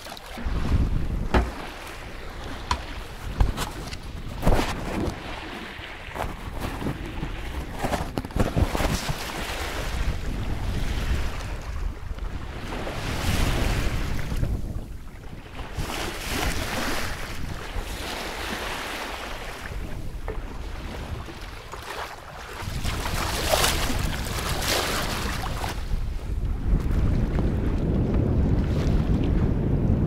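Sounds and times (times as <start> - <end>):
water rushing along hull: 0.0 - 30.0
wind buffeting microphone: 0.0 - 30.0.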